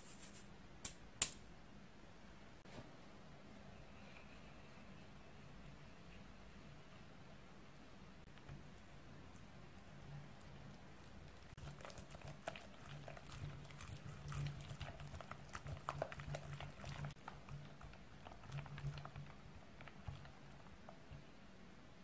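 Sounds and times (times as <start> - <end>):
whisk stirring batter in glass bowl: 11.5 - 21.3.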